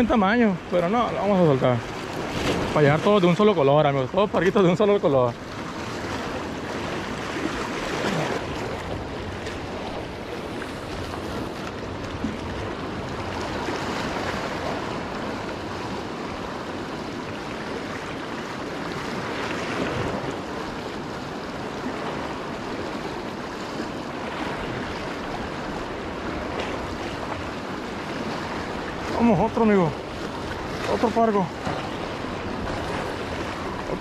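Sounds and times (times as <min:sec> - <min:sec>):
surf washing against rocks: 0:00.0 - 0:34.0.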